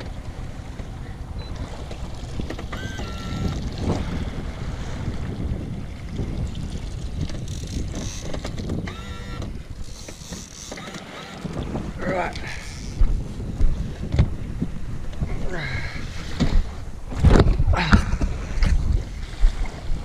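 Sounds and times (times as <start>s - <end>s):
wind buffeting microphone: 0.0s - 10.2s, 11.1s - 20.0s
water rushing under boat: 0.0s - 20.0s
high-pitched whines: 2.7s - 3.6s.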